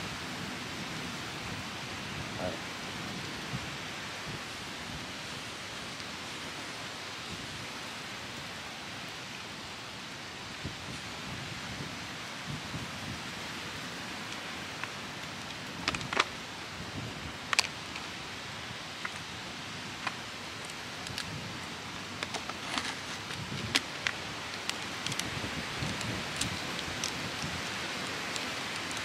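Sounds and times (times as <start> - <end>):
wind hiss: 0.0 - 29.0
campfire crackling and popping: 13.4 - 29.0.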